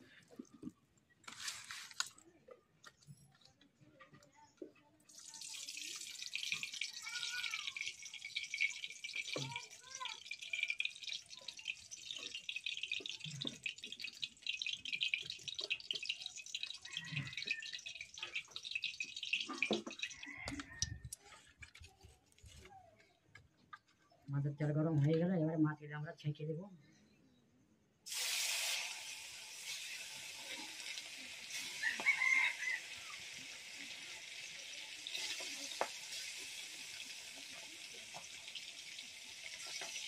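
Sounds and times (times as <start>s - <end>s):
oil sizzling and crackling: 5.1s - 21.1s, 28.1s - 40.0s.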